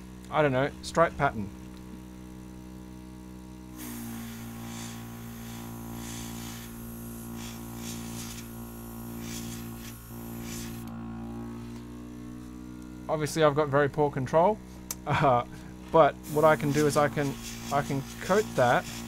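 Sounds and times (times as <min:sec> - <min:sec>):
compressor humming: 0:00.0 - 0:19.0
airbrush air hissing: 0:03.8 - 0:10.9, 0:16.2 - 0:19.0.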